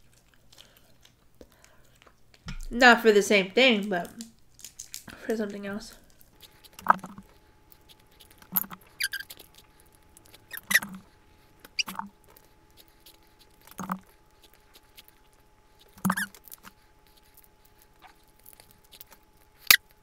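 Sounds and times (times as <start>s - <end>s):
crab shells cracking by hand: 0.0s - 2.7s, 4.0s - 5.2s.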